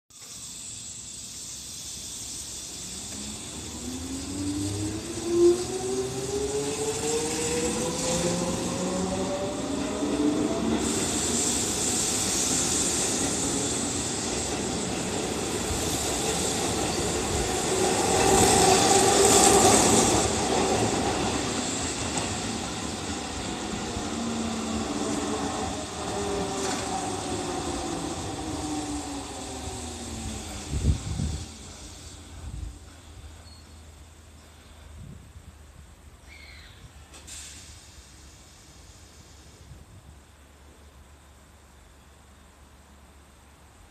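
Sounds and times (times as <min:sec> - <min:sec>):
train wheel and running noise: 0:00.1 - 0:43.9
train traction motors whining: 0:00.2 - 0:34.2
distant train motor whine: 0:00.2 - 0:34.8.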